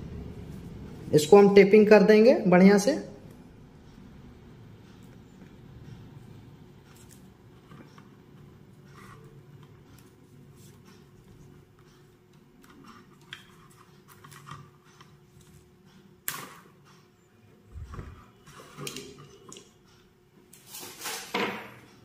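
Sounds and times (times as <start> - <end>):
tape and wires rustling: 4.8 - 21.6.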